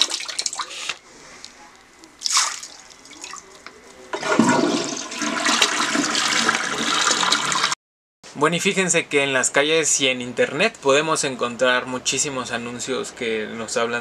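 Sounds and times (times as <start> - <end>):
water rushing into bowl: 2.2 - 7.8
toilet flushing: 4.1 - 7.8.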